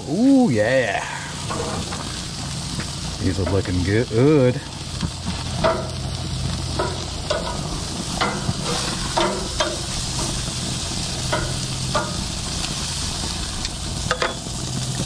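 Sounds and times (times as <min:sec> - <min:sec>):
meat sizzling on grill: 0:00.0 - 0:15.0
steady low hum: 0:00.9 - 0:15.0
metal tongs clinking on grates: 0:06.7 - 0:12.8, 0:13.6 - 0:14.6.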